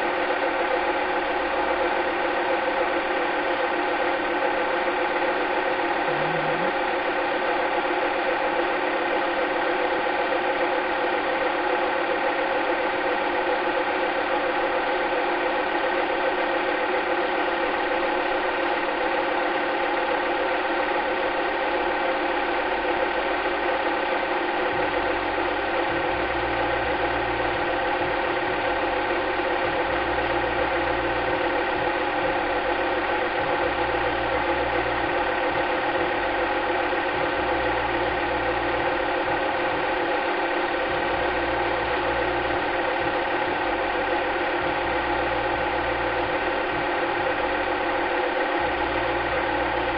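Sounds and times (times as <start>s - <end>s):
film projector whirring and clattering: 0.0s - 49.9s
pulsing low hum: 5.9s - 7.1s, 24.7s - 40.0s, 40.8s - 49.9s.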